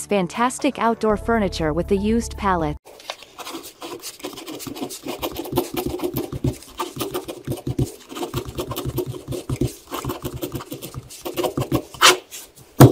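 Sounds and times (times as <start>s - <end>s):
pen scratching on paper: 3.2s - 12.9s.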